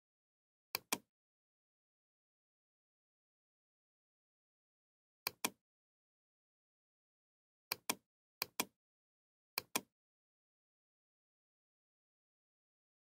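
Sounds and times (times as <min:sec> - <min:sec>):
computer mouse clicking: 0:00.8 - 0:01.1, 0:05.3 - 0:05.6, 0:07.7 - 0:08.8, 0:09.6 - 0:09.9.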